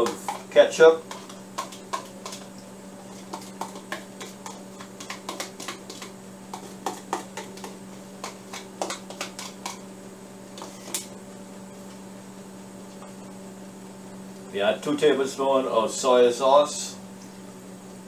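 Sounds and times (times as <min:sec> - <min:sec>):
spoon scraping plastic cup: 0:00.0 - 0:09.8, 0:10.6 - 0:11.1
electrical hum: 0:00.0 - 0:18.0.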